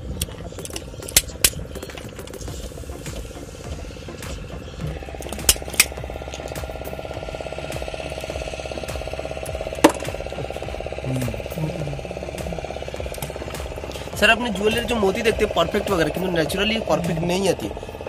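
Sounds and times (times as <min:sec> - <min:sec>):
motorboat engine running: 0:00.0 - 0:18.0
sharp clicks: 0:00.1 - 0:07.0.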